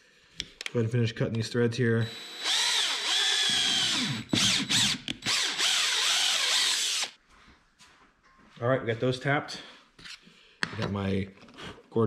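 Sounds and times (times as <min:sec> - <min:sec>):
cordless drill motor whining: 0:02.0 - 0:07.2.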